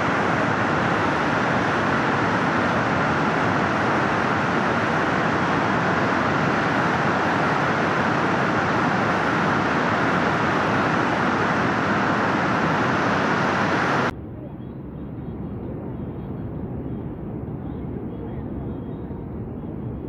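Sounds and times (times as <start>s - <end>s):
floodwater rushing: 0.0s - 14.1s.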